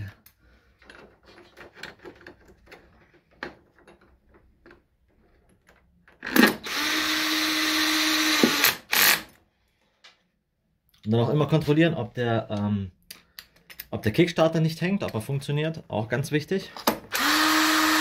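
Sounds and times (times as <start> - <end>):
screws and parts rattling: 0.7 - 6.6
cordless drill driving screw: 6.2 - 9.4, 17.1 - 18.0.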